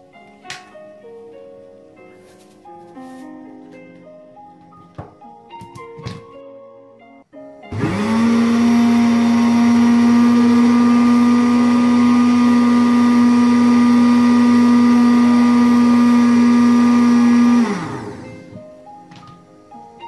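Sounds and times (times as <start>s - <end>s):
blender running: 7.7s - 18.6s.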